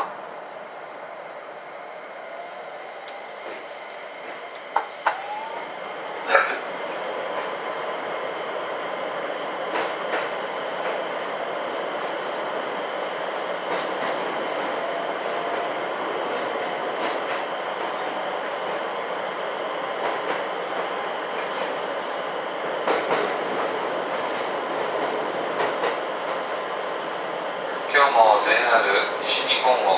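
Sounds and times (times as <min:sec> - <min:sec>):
train running noise: 0:00.0 - 0:29.9
train motor whine: 0:02.4 - 0:06.2.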